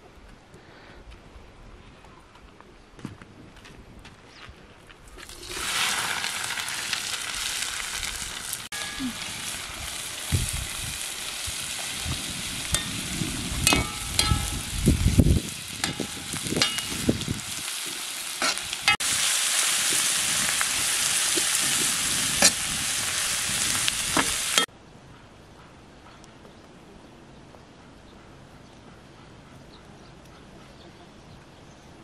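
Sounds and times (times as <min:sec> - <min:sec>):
onions sizzling in a pot: 0:05.2 - 0:24.7.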